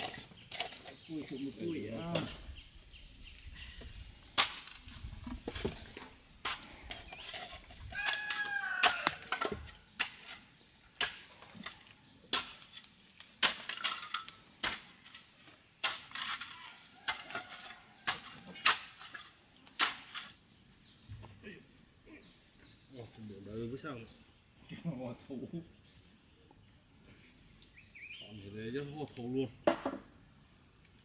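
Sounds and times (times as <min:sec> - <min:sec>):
rooster crowing: 0:07.9 - 0:09.3.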